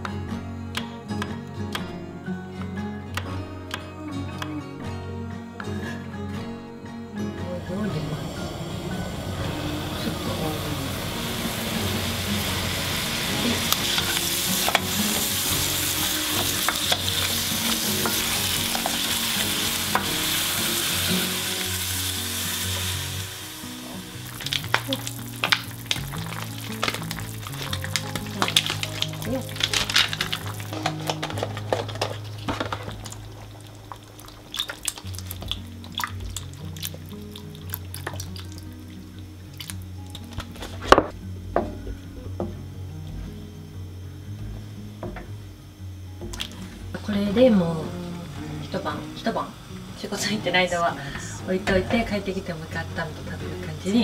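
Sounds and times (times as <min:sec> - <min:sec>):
quiet background music: 0:00.0 - 0:54.0
vegetables sizzling in oil: 0:08.1 - 0:40.7, 0:46.2 - 0:54.0.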